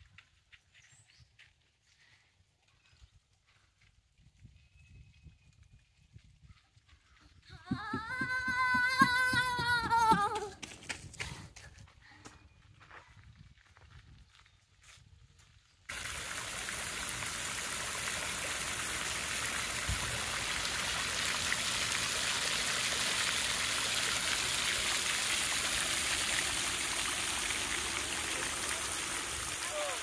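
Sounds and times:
fountain water splashing: 15.9 - 30.0.

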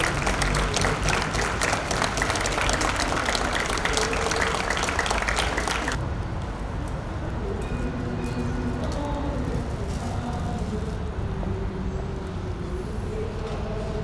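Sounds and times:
crowd clapping: 0.0 - 6.0.

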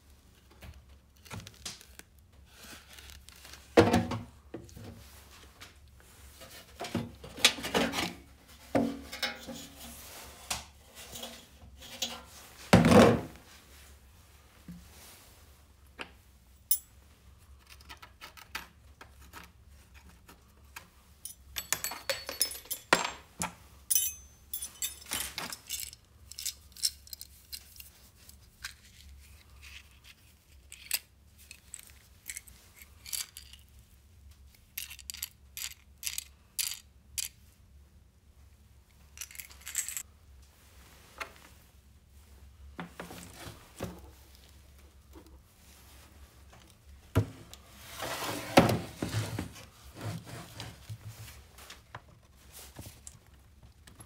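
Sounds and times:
metal fittings and screws clinking: 9.1 - 9.8, 21.2 - 27.9, 34.8 - 37.4, 39.2 - 40.0.

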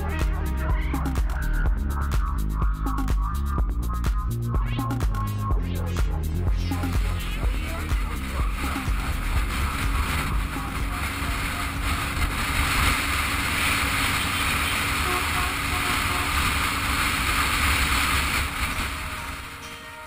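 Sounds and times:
motorcycle engine: 0.0 - 19.8
road noise: 0.0 - 20.0
wind rushing over microphone: 6.5 - 19.6.

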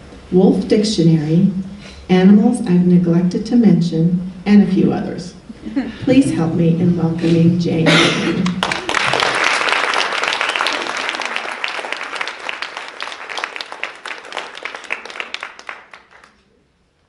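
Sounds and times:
audience applauding: 8.4 - 16.5.

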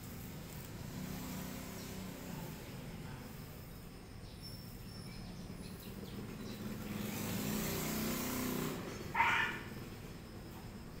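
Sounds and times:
vehicle passing: 0.0 - 4.1, 4.7 - 11.0
dog barking: 9.1 - 9.7.

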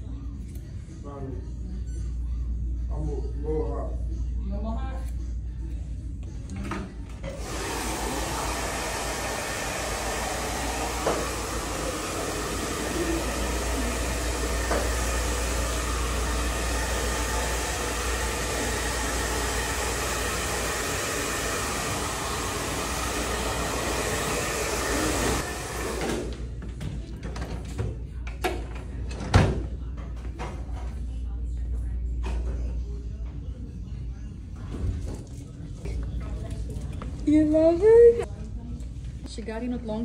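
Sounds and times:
hair dryer blowing: 7.3 - 26.4.

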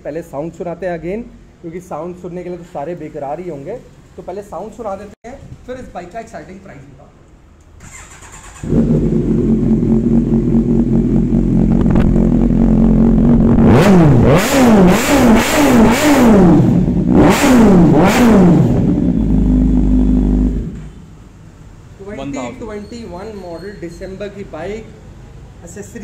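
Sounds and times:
motorcycle throttle blips: 7.8 - 21.2
motorcycle engine idling: 8.6 - 13.4.

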